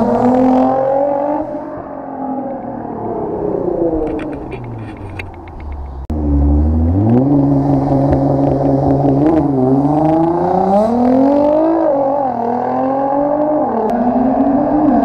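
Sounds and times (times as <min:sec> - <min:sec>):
car exhaust accelerating hard: 0:05.8 - 0:14.3.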